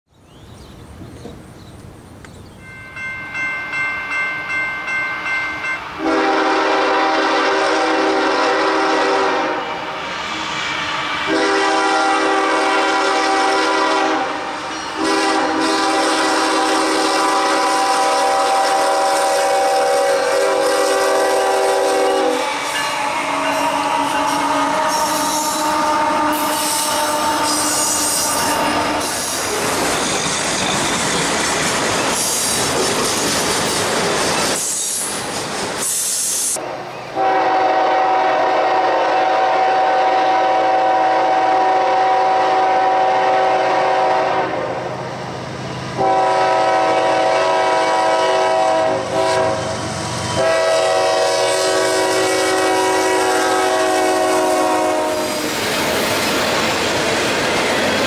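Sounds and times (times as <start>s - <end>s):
wheels squealing on rails: 2.5s - 37.7s, 45.0s - 58.0s
locomotive bell ringing: 2.6s - 6.3s
train air horn blasts: 5.8s - 29.6s, 35.9s - 45.0s, 46.0s - 55.6s.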